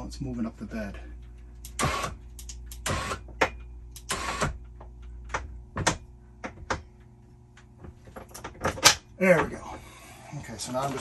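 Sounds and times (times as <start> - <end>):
steady low hum: 0.0 - 11.0
electric actuator whirring: 1.6 - 3.3, 3.9 - 4.7, 9.4 - 11.0.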